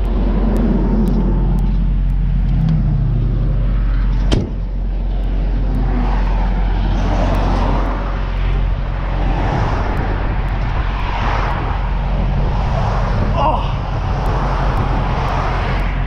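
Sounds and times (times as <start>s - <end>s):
highway traffic passing: 0.0s - 16.0s
truck door slamming: 4.2s - 4.6s.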